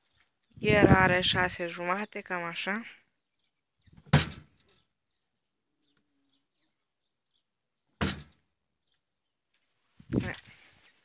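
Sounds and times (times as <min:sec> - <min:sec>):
sharp thump: 0:04.0 - 0:04.5, 0:08.0 - 0:08.4.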